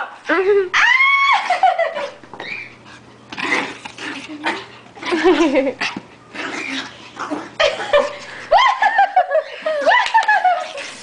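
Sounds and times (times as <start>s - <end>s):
puppy growling and yipping: 1.4s - 8.2s.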